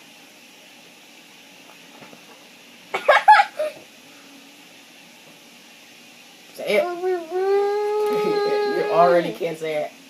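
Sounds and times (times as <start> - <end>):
boy laughing with mouth full: 3.0 - 3.8.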